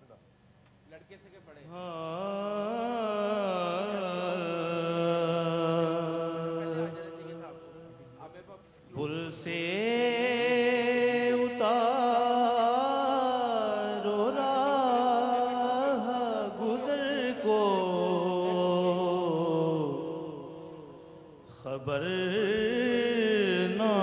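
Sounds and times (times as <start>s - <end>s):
man singing devotional song: 1.7s - 24.0s.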